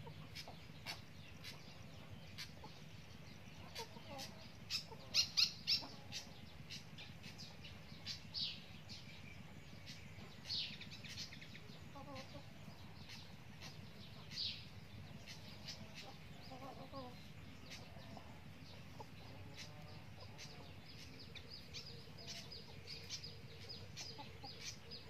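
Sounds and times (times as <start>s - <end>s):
hen clucking softly: 0.0s - 2.8s, 3.5s - 7.4s, 11.1s - 14.4s, 15.2s - 25.0s
chicks chirping: 0.0s - 25.0s.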